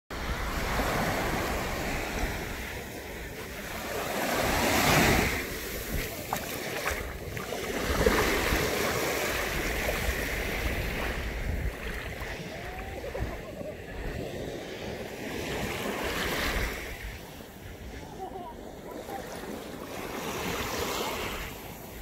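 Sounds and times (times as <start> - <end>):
waves washing on sandy shore: 0.1 - 22.0
wind rumbling on microphone: 4.4 - 17.8.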